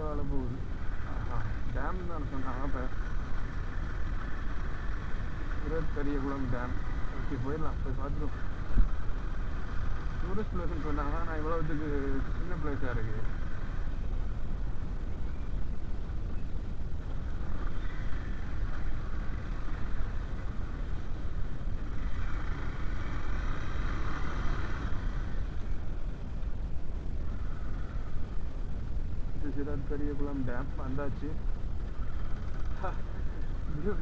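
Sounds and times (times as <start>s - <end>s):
wind noise: 0.0s - 23.6s
motorcycle engine rumble: 0.0s - 34.0s.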